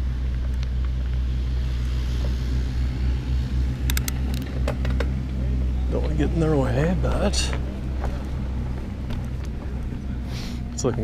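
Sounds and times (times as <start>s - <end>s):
excavator diesel engine drone: 0.0s - 11.0s
sharp clicks: 3.8s - 5.1s.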